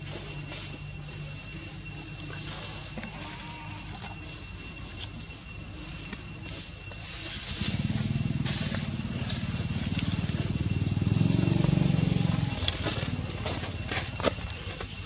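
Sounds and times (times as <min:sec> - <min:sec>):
motorbike engine running: 0:06.0 - 0:15.0.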